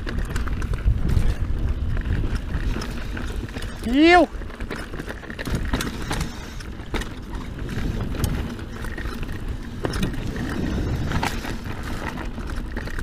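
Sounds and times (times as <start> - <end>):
bike knocking and rattling: 0.0 - 13.0
bike tyres rumbling over dirt: 0.0 - 13.0.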